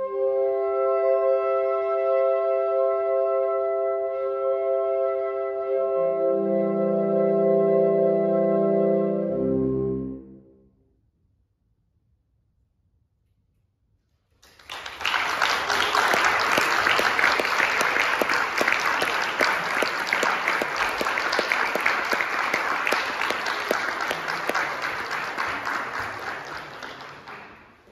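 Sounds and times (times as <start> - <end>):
audience applause: 14.4 - 27.9.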